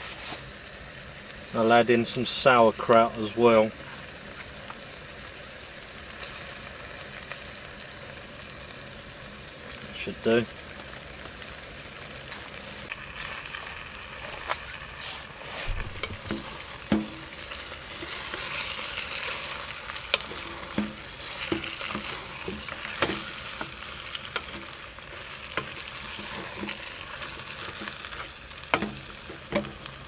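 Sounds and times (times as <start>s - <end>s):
food sizzling in a pot: 0.0s - 30.0s
wooden spatula knocking pot: 16.0s - 17.3s, 20.2s - 23.2s, 28.7s - 29.8s.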